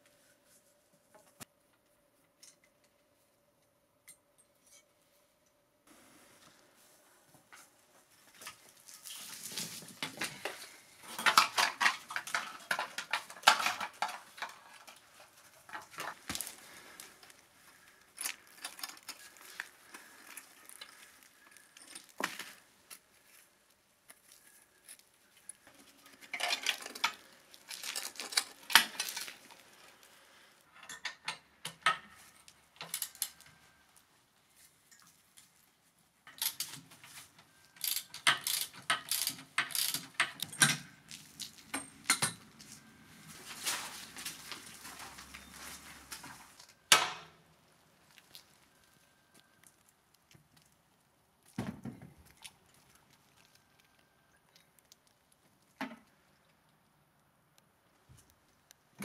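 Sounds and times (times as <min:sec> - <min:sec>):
metal parts and tools clanking: 0:09.4 - 0:22.6, 0:25.5 - 0:29.6, 0:30.7 - 0:33.5, 0:36.3 - 0:43.0.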